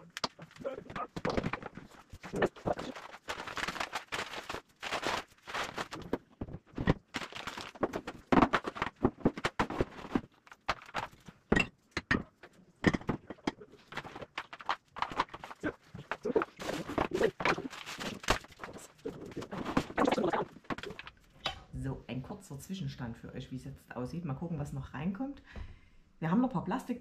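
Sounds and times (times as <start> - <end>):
packages rustling: 0.0 - 11.5, 13.7 - 21.3.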